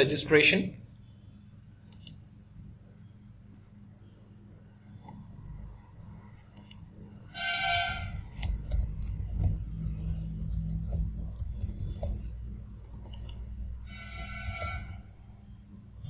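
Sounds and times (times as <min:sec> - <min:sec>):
low hum: 0:00.8 - 0:16.0
short tone: 0:13.9 - 0:15.1.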